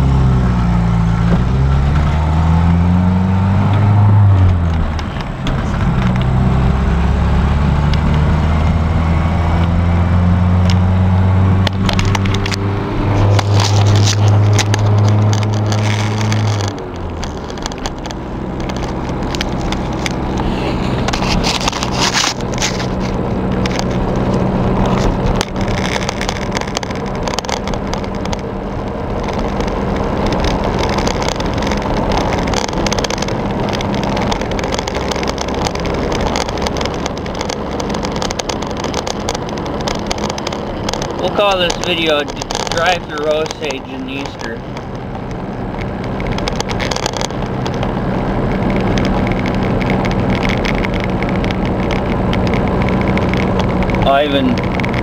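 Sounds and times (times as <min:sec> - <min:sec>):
pickup engine accelerating: 0:00.0 - 0:55.0
light clicks and rattles: 0:13.2 - 0:55.0.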